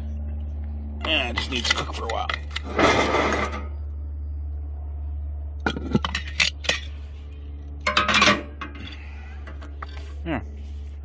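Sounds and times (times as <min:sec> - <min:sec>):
metal scraping: 0:01.1 - 0:03.8
metal clinking on cast iron pot: 0:07.9 - 0:09.0.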